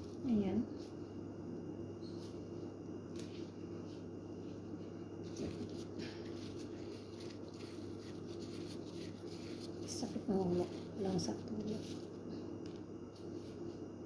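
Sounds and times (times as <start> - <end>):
steady electric hum: 0.0 - 14.0
gloved hands handling food: 3.1 - 13.7.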